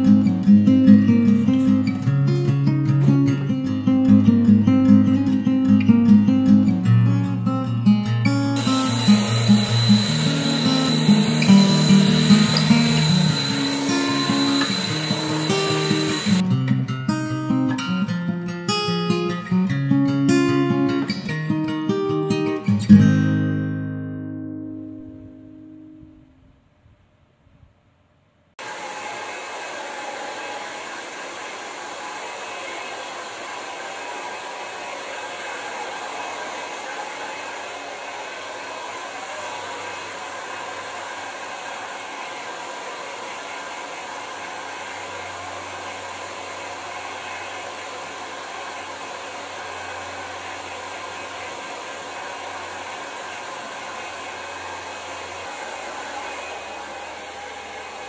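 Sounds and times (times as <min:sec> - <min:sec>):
hair dryer blowing: 0:08.6 - 0:16.4, 0:28.6 - 0:58.0.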